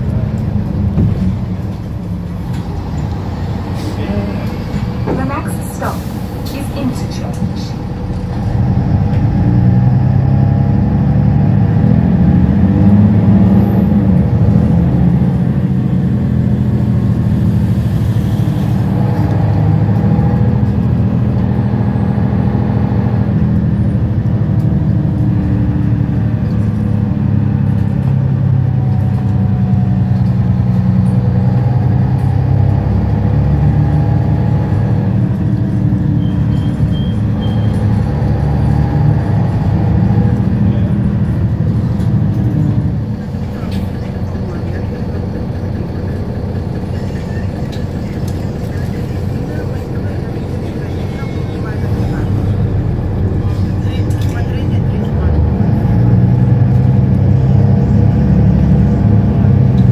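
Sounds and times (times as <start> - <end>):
bus engine pulling: 0.0 - 59.9.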